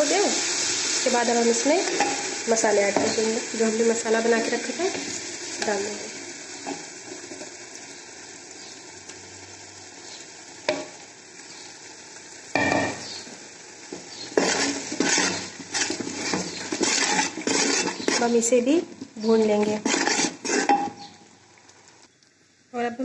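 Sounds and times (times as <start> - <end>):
paste sizzling in hot oil: 0.0 - 22.0
spatula scraping metal pot: 14.4 - 18.5, 19.5 - 21.1.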